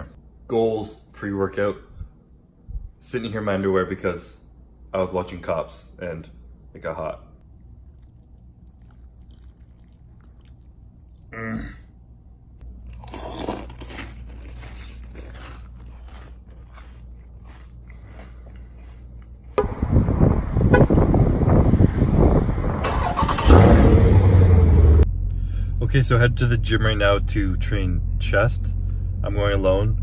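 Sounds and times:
cereal crunching: 0:07.8 - 0:11.2, 0:12.6 - 0:19.6
street and car noise: 0:19.2 - 0:30.0.

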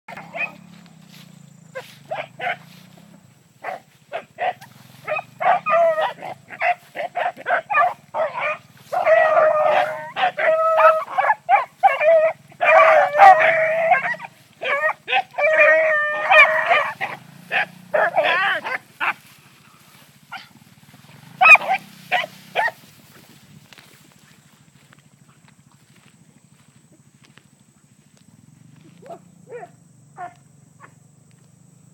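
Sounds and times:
beagles barking and baying: 0:00.1 - 0:23.2, 0:28.8 - 0:31.0.

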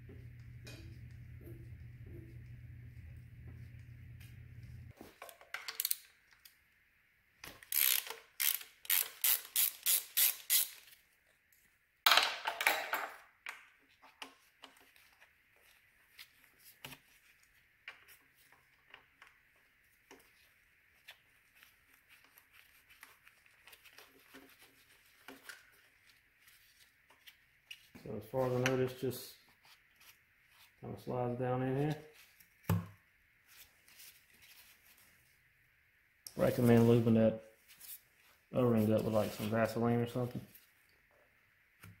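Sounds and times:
tools being handled: 0:05.0 - 0:06.5, 0:07.4 - 0:11.0
hand ratchet clicking: 0:07.7 - 0:10.8.

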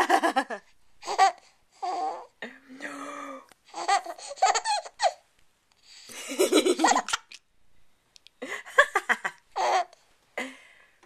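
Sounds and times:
baby giggling: 0:01.0 - 0:02.3, 0:03.7 - 0:05.2, 0:06.1 - 0:07.5, 0:09.1 - 0:10.0.

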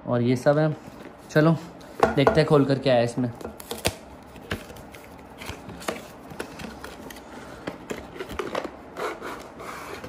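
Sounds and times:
packaging clicks and rustles: 0:03.6 - 0:10.0.

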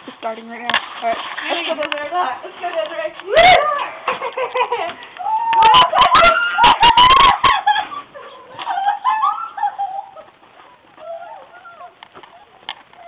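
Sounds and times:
people squealing and yelping: 0:03.2 - 0:04.2, 0:05.2 - 0:13.0.

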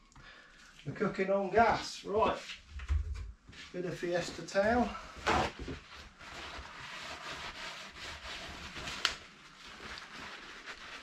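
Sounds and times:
paper towel rustling: 0:03.5 - 0:11.0
paper towel tearing: 0:05.3 - 0:11.0.

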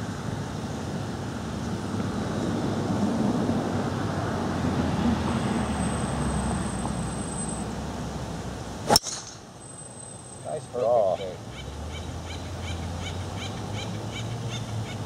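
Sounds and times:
distant traffic rumble: 0:00.0 - 0:15.0
faint thin high whine: 0:08.8 - 0:11.1.

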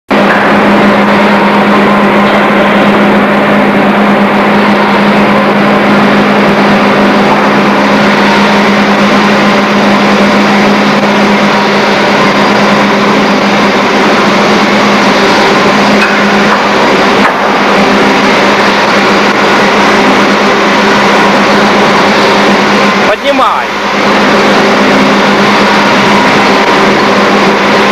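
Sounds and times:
low electrical hum: 0:00.1 - 0:27.9
machinery roar: 0:00.1 - 0:27.9.

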